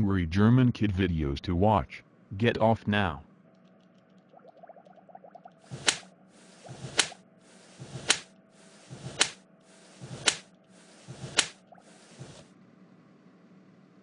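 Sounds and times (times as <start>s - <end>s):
sharp face slap smack: 8.1s - 8.3s.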